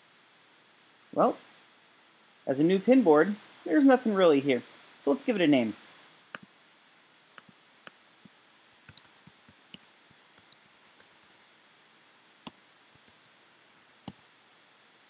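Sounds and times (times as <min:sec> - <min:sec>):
keyboard keys clicking: 0:08.7 - 0:11.4, 0:13.0 - 0:14.2.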